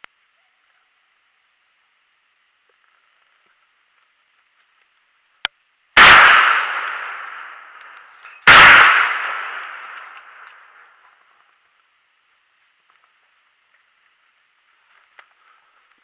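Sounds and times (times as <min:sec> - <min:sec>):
shotgun shots echoing: 0:06.0 - 0:11.0.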